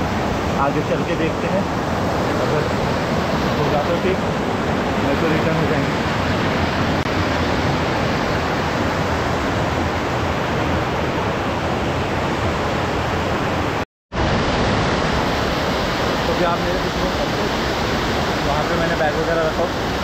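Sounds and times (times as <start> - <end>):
stream rushing over rocks: 0.0 - 20.0.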